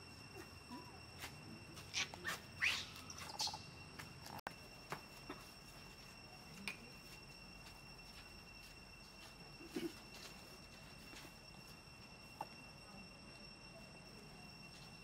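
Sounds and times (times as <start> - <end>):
faint steady high tone: 0.0 - 15.0
high-pitched animal chirps: 1.9 - 3.8.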